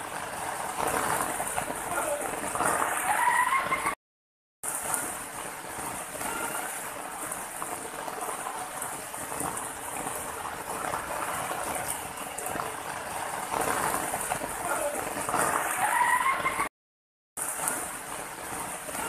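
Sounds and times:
water splashing over rocks: 0.0s - 3.5s, 4.6s - 16.3s, 17.4s - 19.0s.

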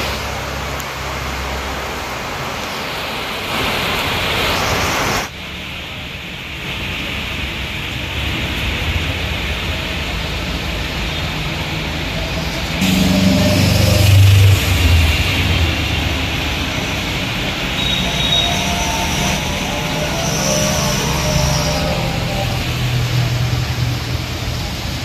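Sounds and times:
rain hissing on wet street: 0.0s - 25.0s
vehicles passing on wet road: 0.0s - 25.0s
low rumble: 8.6s - 25.0s.

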